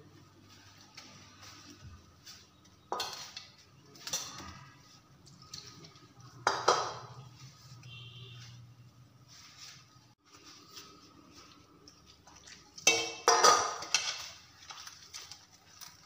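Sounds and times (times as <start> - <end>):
metal mixing bowl clinking: 0.6 - 7.9, 11.3 - 16.0.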